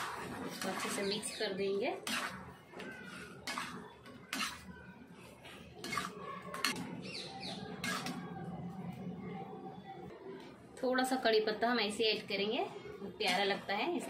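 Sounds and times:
spoon scraping metal pan: 0.0 - 7.0, 7.6 - 8.3
spoon stirring food in wok: 0.0 - 8.4.

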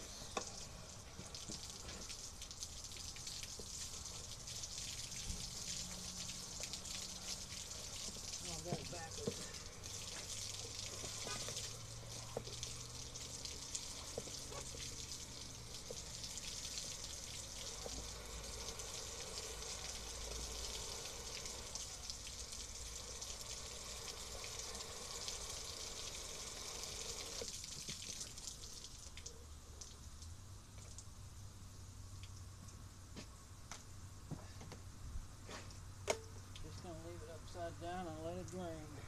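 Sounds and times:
hose spraying water: 0.0 - 30.0.

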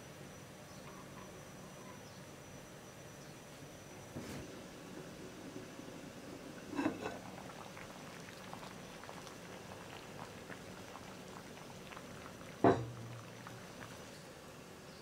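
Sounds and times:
broth bubbling in a pot: 4.4 - 15.0
ceramic lid clink: 12.6 - 12.9.

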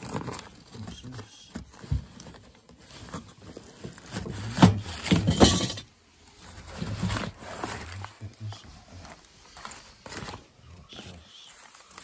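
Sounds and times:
clattering knocks and rattles: 3.7 - 5.9.

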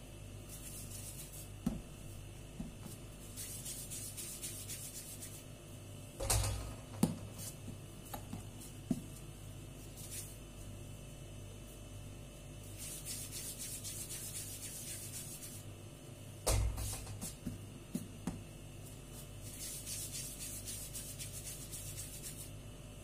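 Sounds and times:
hands rubbing dough: 0.4 - 5.5, 7.1 - 10.7, 12.6 - 15.7, 16.8 - 22.6.

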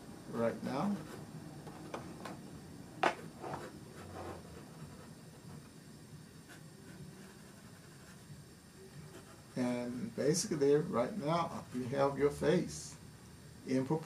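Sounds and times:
pencil scratching on paper: 3.4 - 5.6, 6.5 - 8.2, 9.0 - 9.6.

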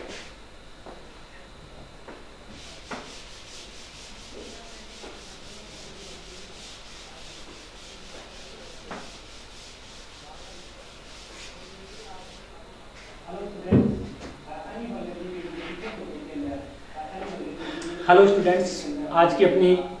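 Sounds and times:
duster scrubbing a blackboard: 2.5 - 12.6.

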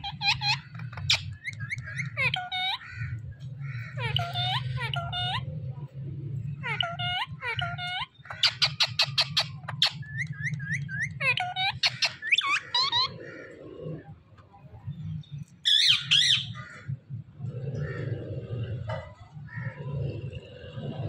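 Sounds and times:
parakeet calling: 0.0 - 5.5, 6.4 - 13.5, 15.6 - 17.0
parakeet squawk: 0.0 - 5.5, 6.5 - 13.4, 15.7 - 16.9.

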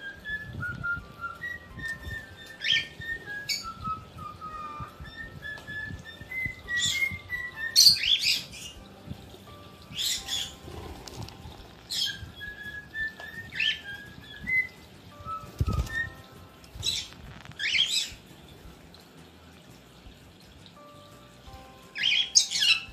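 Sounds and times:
thin wavering whistle: 0.0 - 8.5, 11.9 - 16.5
wings flapping: 15.4 - 16.2
parrots chirping shrilly: 22.0 - 22.9.

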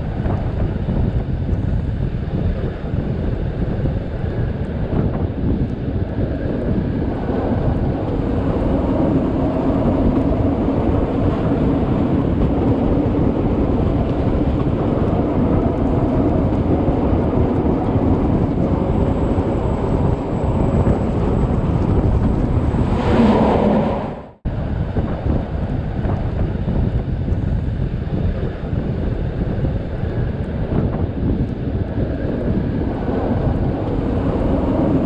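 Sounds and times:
wind on microphone: 0.0 - 35.0
train coaches rumbling: 6.3 - 24.9.

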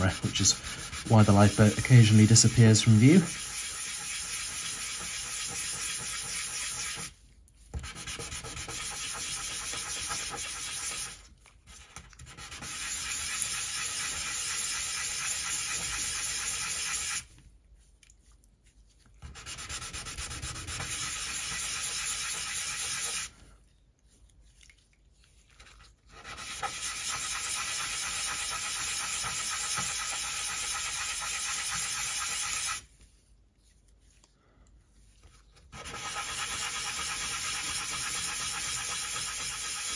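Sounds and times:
gritty wet sanding: 0.0 - 17.9, 18.6 - 39.9.

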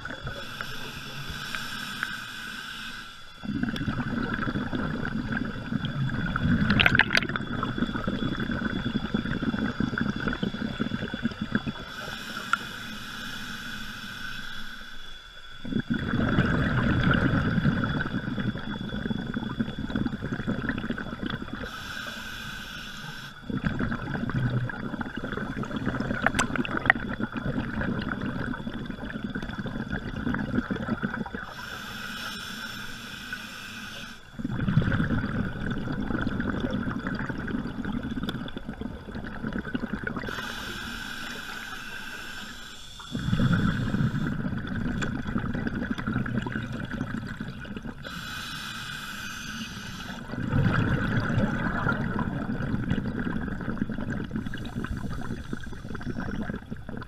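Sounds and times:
exhaled bubbles burbling: 0.0 - 1.5, 3.4 - 12.4, 15.5 - 21.9, 23.4 - 31.9, 34.3 - 41.8, 42.9 - 57.0
regulator breathing hiss: 0.0 - 3.6, 11.7 - 15.7, 21.6 - 23.4, 31.4 - 34.5, 40.2 - 44.4, 48.0 - 50.3, 54.3 - 56.4.

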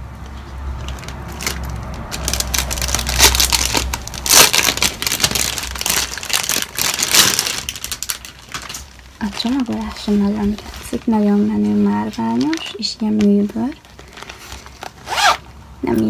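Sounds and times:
packaging crinkling: 0.5 - 15.6.

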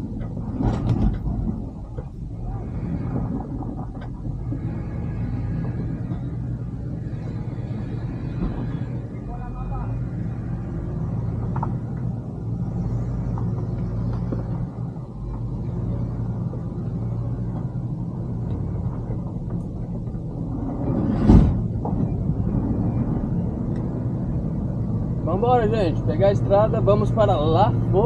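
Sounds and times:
motorhome engine humming: 0.0 - 28.0
sharp thump: 21.0 - 22.0.

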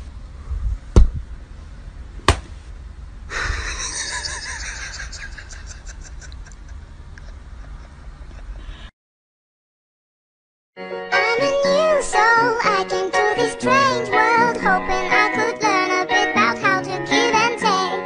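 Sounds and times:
sharp knocks: 2.2 - 2.6.

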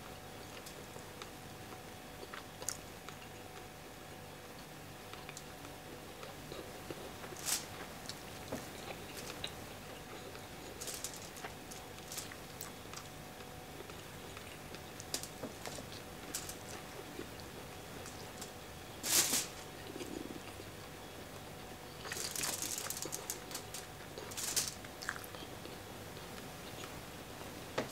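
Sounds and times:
chewing smacks: 24.1 - 26.9.

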